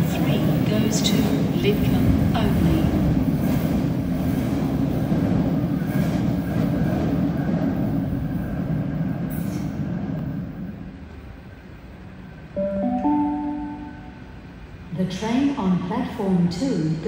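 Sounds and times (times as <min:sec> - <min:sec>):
train wheels rumbling: 0:00.0 - 0:12.5
faint high tone: 0:12.6 - 0:14.4.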